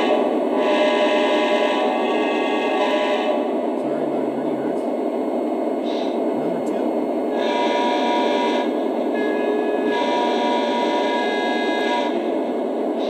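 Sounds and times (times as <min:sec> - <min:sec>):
multi-tone air horn: 0:00.0 - 0:03.5, 0:07.4 - 0:12.4
diesel engine rumble: 0:03.5 - 0:07.3.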